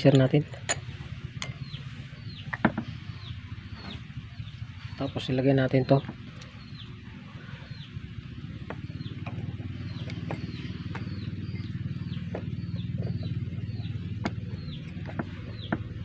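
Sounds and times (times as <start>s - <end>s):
motor droning: 6.0s - 16.0s.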